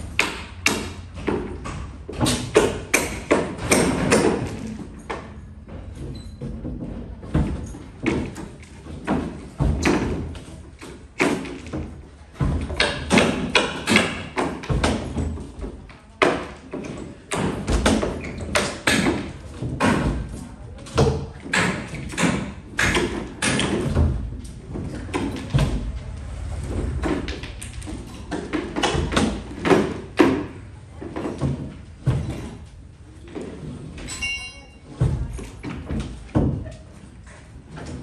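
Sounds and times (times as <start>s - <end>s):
construction thumps and knocks: 0.0s - 34.2s, 34.9s - 38.0s.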